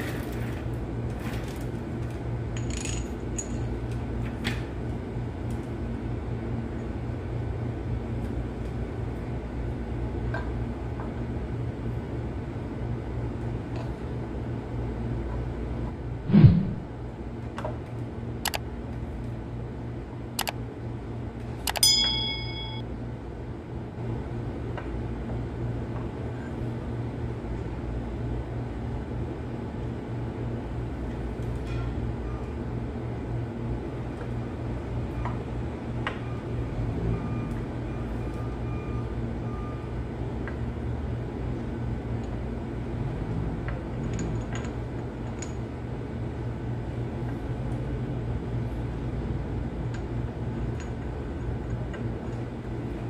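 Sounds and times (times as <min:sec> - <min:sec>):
steady low hum: 0:01.8 - 0:38.3
sharp metal clink: 0:21.8 - 0:22.8.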